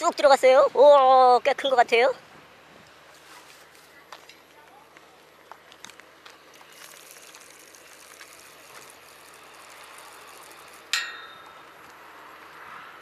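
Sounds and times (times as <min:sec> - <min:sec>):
fishing reel whirring: 0:06.4 - 0:12.7
metallic clank with ring: 0:10.9 - 0:11.6.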